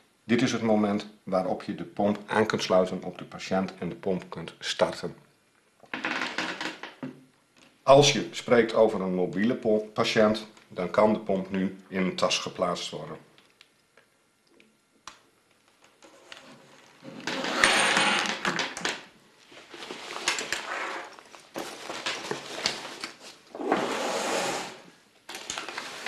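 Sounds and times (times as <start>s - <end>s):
fabric bag rustling: 19.4s - 23.5s.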